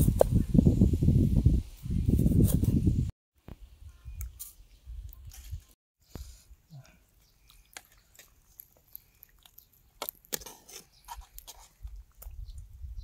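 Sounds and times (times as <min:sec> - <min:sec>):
person chewing food: 0:07.1 - 0:12.4.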